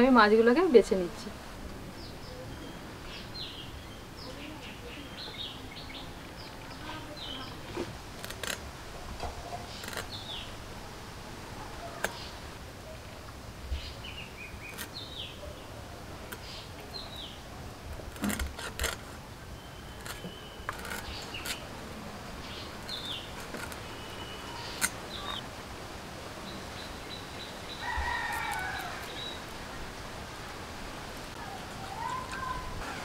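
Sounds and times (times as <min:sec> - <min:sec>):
small birds chirping: 0:02.0 - 0:08.6, 0:09.5 - 0:10.6, 0:11.6 - 0:13.0, 0:13.7 - 0:17.5, 0:19.5 - 0:21.8, 0:22.4 - 0:25.4.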